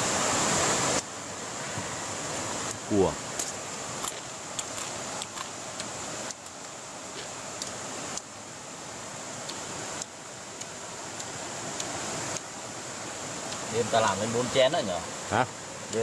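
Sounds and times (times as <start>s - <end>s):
rushing background noise with hiss: 0.0s - 16.0s.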